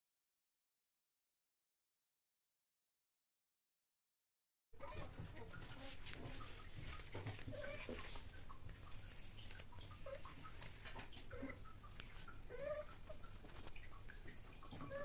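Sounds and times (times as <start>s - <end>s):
faint clicks: 6.1s - 15.0s
cat chirping calls: 11.2s - 13.3s, 14.7s - 15.0s.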